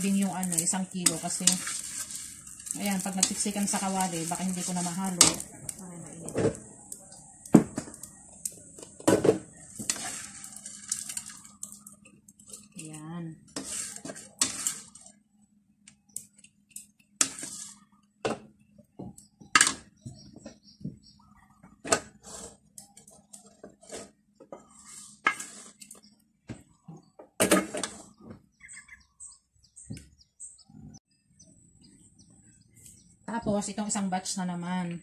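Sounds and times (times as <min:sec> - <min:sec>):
wooden spatula scraping a wok: 0:00.0 - 0:06.7, 0:08.8 - 0:12.8, 0:13.4 - 0:15.2, 0:17.2 - 0:17.9, 0:21.9 - 0:26.1, 0:27.6 - 0:28.2.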